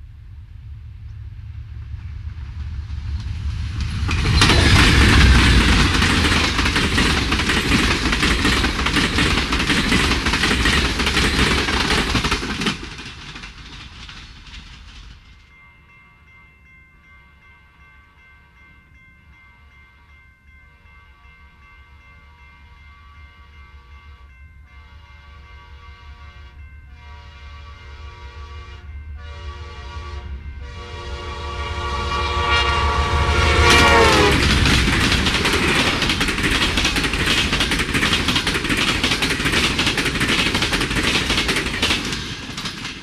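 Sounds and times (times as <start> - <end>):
diesel locomotives rumbling: 0.0 - 17.1, 20.8 - 43.0
train wheels clattering on rails: 1.8 - 15.6, 33.0 - 43.0.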